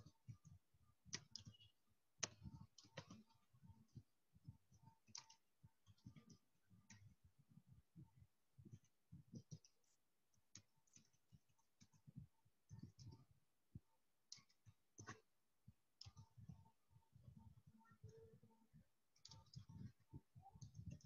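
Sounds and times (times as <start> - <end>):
faint keyboard typing: 0.0 - 21.0.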